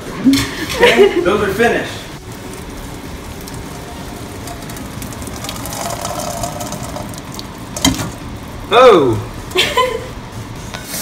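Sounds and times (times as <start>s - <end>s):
water splashing through colander: 2.2s - 8.7s.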